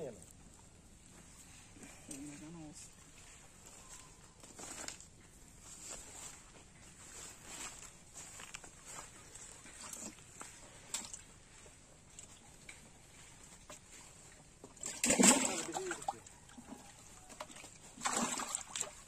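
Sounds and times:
fish splashing in bucket: 13.5s - 19.0s.

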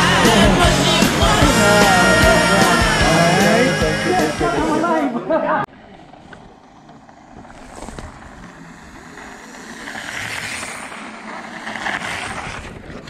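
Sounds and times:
bike tyres crunching on gravel: 5.7s - 13.0s.

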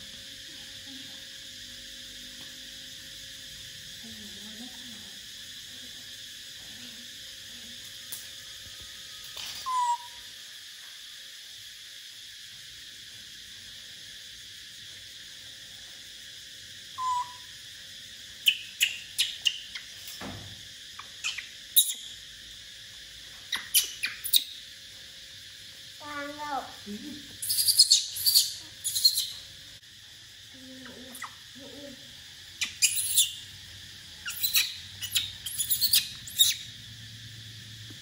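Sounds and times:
baby monkey squeaky calls: 9.6s - 10.2s, 17.0s - 17.5s, 18.4s - 20.1s, 21.0s - 22.2s, 23.5s - 24.6s, 27.4s - 29.4s, 31.1s - 31.4s, 32.6s - 33.5s, 34.2s - 36.7s.

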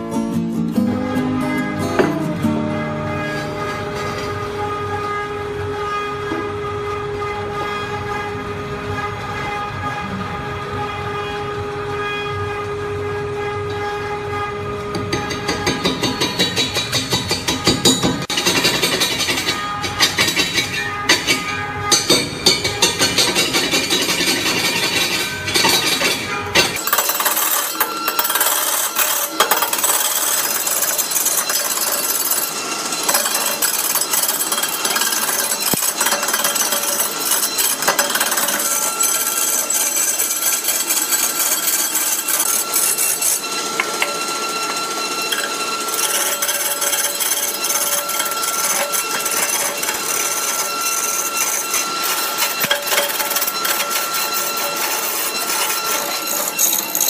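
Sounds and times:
lathe chisel scraping wood: 22.2s - 57.0s.

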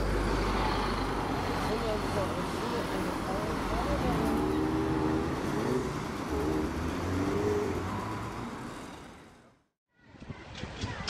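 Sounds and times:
vehicle engines passing: 0.0s - 9.7s.

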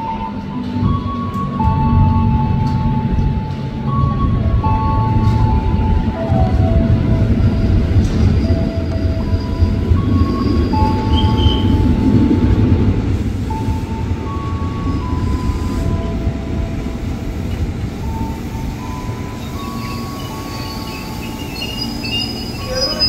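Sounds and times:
electric train rumbling and slowing: 0.0s - 23.0s.

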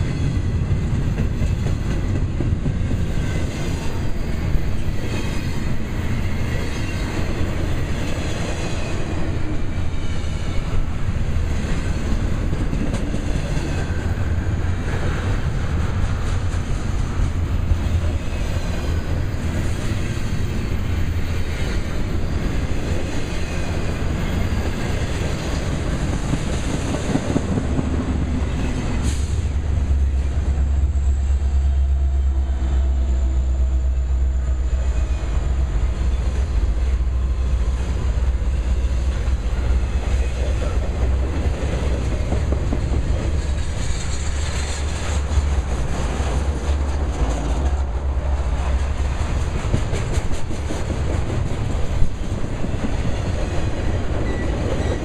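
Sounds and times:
clickety-clack over rail joints: 0.0s - 32.3s, 34.4s - 55.0s
low diesel locomotive drone: 0.0s - 55.0s
train wheels rumbling on rail: 0.0s - 55.0s
faint wheel squeal: 53.8s - 55.0s.

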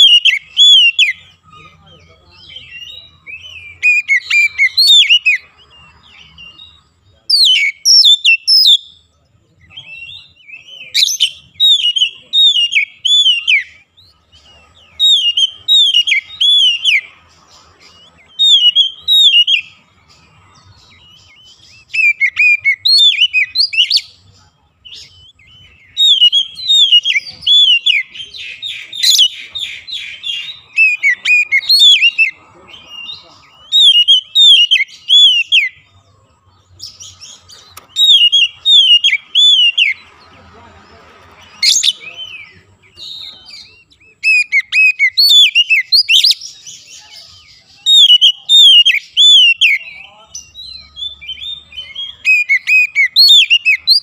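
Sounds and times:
bird whistling song: 0.0s - 36.0s, 36.7s - 40.2s, 41.4s - 54.0s.

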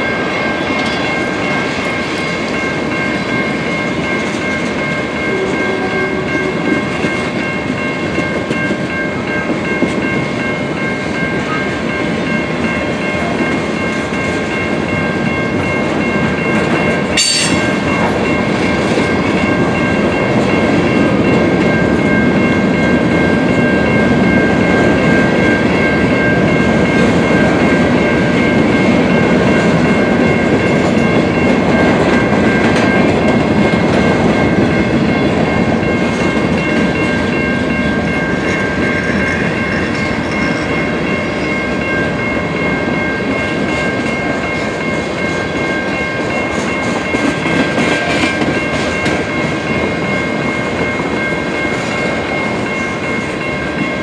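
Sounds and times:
train wheels rumbling on rail: 0.0s - 54.0s
high-pitched tones: 16.8s - 21.2s.

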